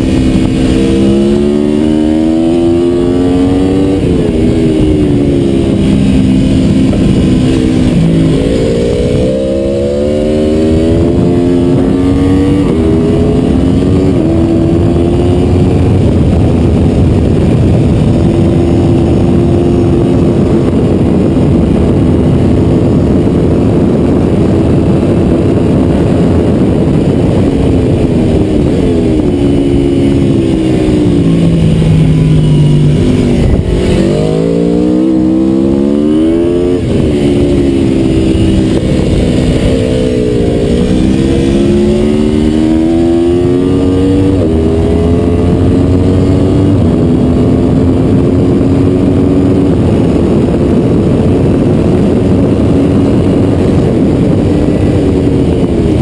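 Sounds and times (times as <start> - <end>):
motorcycle engine revving: 0.0 - 56.0
wind noise: 0.0 - 56.0.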